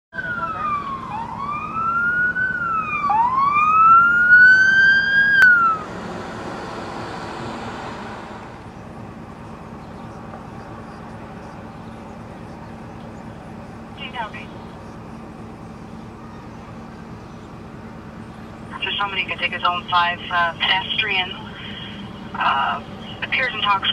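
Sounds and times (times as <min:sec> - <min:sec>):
electronic siren sweeping: 0:00.1 - 0:08.7
steady traffic noise: 0:00.1 - 0:23.9
vehicle rushing past: 0:00.2 - 0:08.8.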